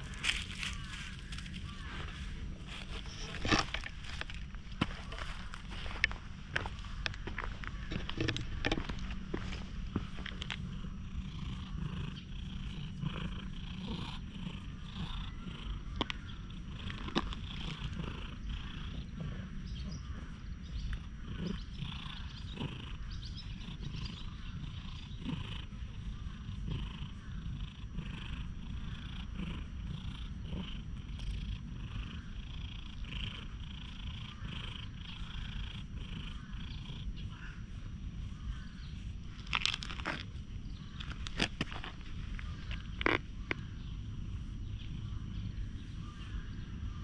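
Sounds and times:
sharp crackles: 0.0s - 6.2s, 39.2s - 43.6s
cat purring: 0.0s - 47.0s.

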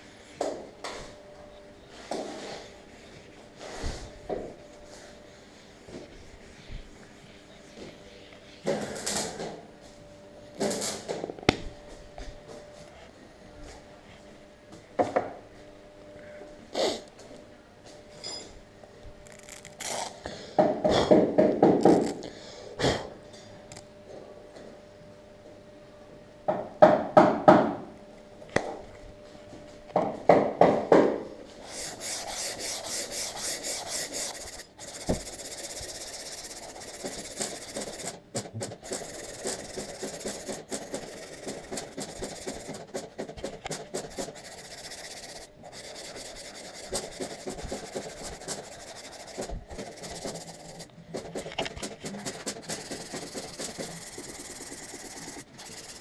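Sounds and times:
sandpaper rasping on filler: 4.9s - 7.8s, 31.6s - 56.0s.

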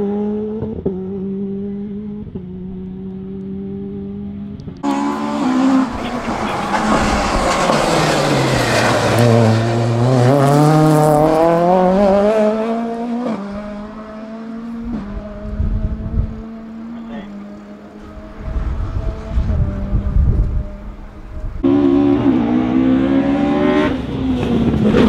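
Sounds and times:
race car engine passing: 0.0s - 25.0s.

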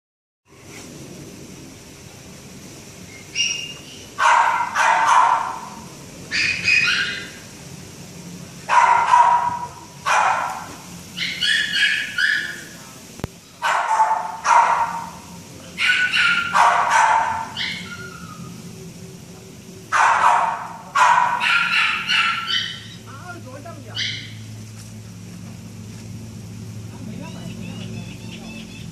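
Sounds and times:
puppy barking and yelping: 3.2s - 7.4s, 8.7s - 12.6s, 13.6s - 15.2s, 15.8s - 18.5s, 20.0s - 23.1s, 23.9s - 24.5s.

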